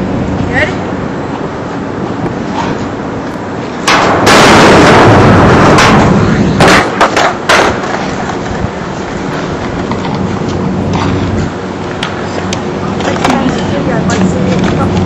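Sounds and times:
skateboard wheels rolling on metal: 0:00.0 - 0:15.0
skateboard landing cracks: 0:03.8 - 0:05.0, 0:05.6 - 0:08.6.

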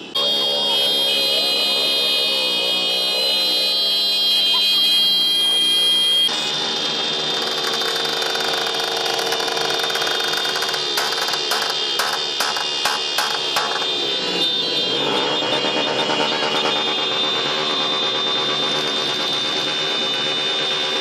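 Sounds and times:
crowd voices: 0:00.0 - 0:06.3
motorcycle engines: 0:00.0 - 0:21.0
motorcycle horns blaring: 0:00.0 - 0:21.0
sharp pops: 0:10.4 - 0:13.8.

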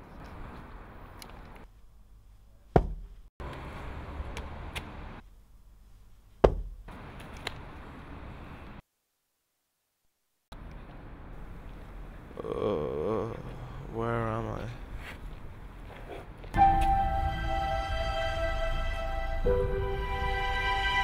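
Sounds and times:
outdoor background noise: 0:00.0 - 0:21.0
hard blows landing on a person: 0:02.8 - 0:03.1, 0:06.4 - 0:06.8.

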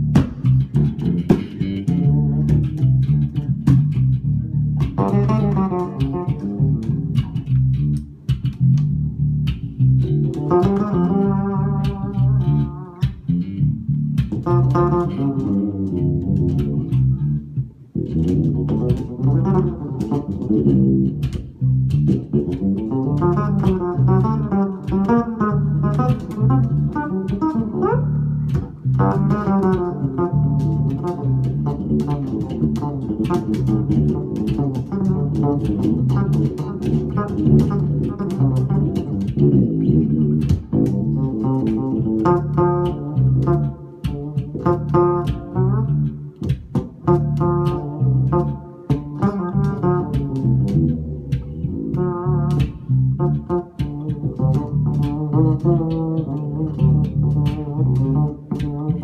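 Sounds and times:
fretless electric bass: 0:00.0 - 0:59.0
fretted electric bass: 0:00.0 - 0:59.0.

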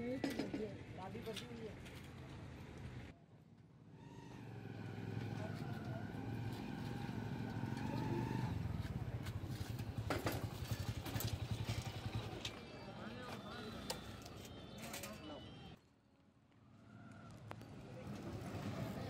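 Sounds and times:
vehicle engines idling: 0:04.8 - 0:14.8.

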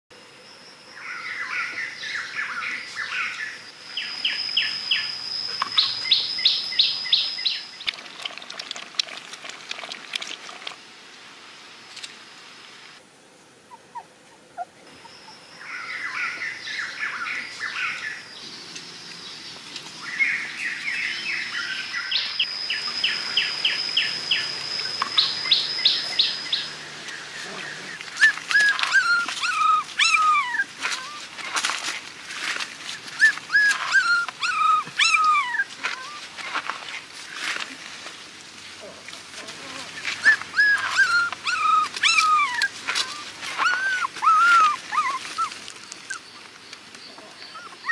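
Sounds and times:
puppies whimpering: 0:22.4 - 0:31.4, 0:33.1 - 0:36.3, 0:40.0 - 0:46.5, 0:47.2 - 0:47.9.

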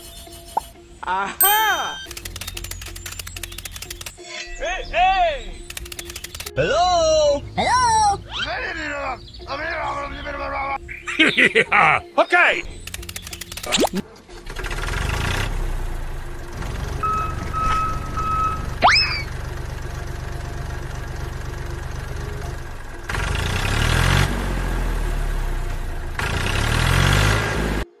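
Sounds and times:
diesel tractor engine running: 0:02.1 - 0:11.0, 0:12.6 - 0:27.8
quick rising whistle: 0:17.0 - 0:19.3
short horn beeps: 0:17.0 - 0:19.3.

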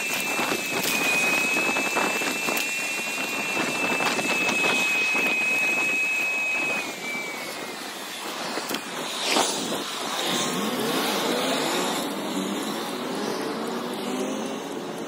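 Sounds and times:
steady high tone: 0:00.0 - 0:09.2
wind and tyres hissing: 0:00.0 - 0:15.0.

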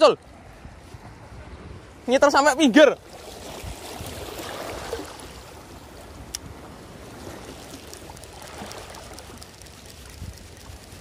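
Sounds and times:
waves lapping against rocks: 0:03.0 - 0:11.0.

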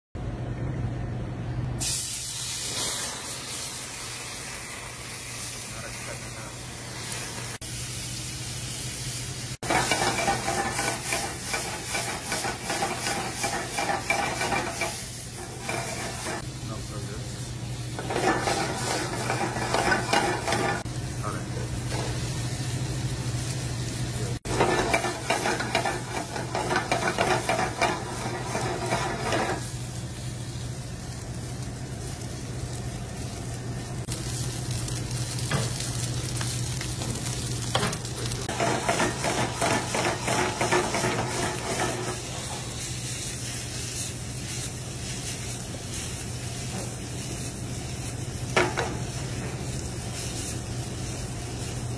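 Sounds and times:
food sizzling in a pan: 0:01.8 - 0:51.9.

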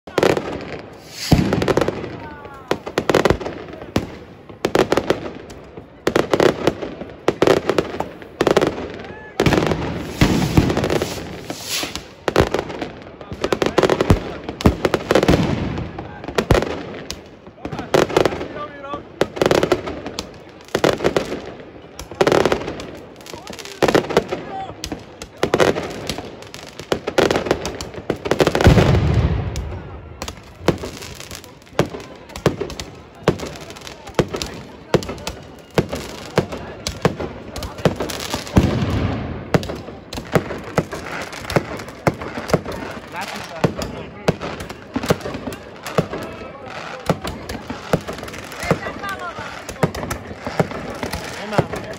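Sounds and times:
fireworks bursting with bangs: 0:00.0 - 0:51.9
fireworks crackling: 0:00.0 - 0:51.9
deep firework boom: 0:28.6 - 0:30.0.

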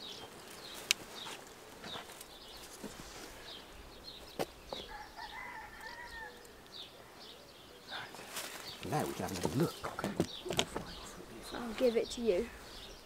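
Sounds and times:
small birds chirping: 0:00.0 - 0:13.0
rooster crowing: 0:04.8 - 0:06.6.

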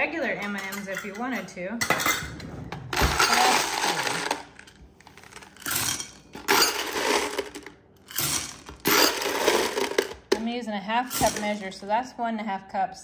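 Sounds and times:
hard candies clattering into bowl: 0:03.0 - 0:10.4.

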